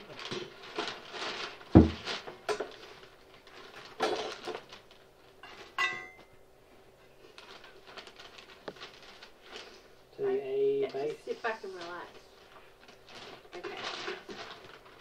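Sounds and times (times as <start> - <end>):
paper rustling: 0.0 - 5.8, 7.2 - 9.9, 10.8 - 15.0
heavy low thump: 1.8 - 2.0.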